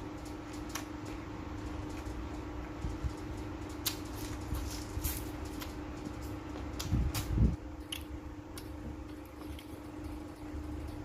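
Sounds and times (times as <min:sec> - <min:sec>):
steady low hum: 0:00.0 - 0:11.0
person chewing: 0:06.6 - 0:10.3.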